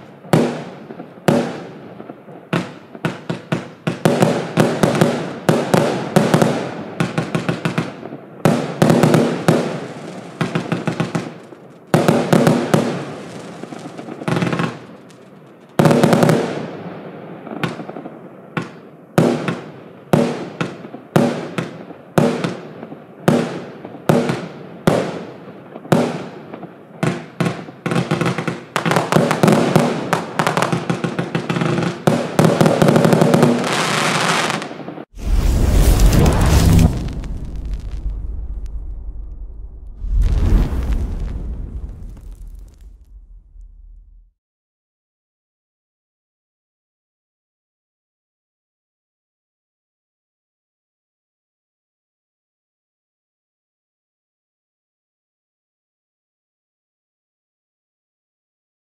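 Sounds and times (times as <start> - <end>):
firework launches and bursts: 35.2 - 44.3.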